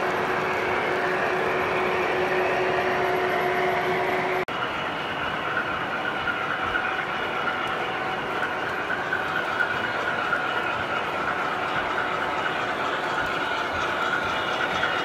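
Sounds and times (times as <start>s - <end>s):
model train high whine: 0.0s - 15.0s
model train rolling rumble: 0.0s - 15.0s.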